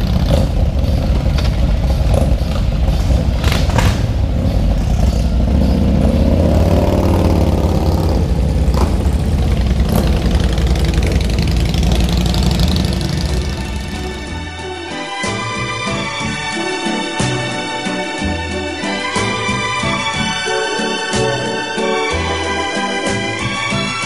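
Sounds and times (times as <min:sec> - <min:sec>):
motorcycle engine revving: 0:00.0 - 0:14.5
motorcycles idling and pulling away: 0:00.0 - 0:24.0.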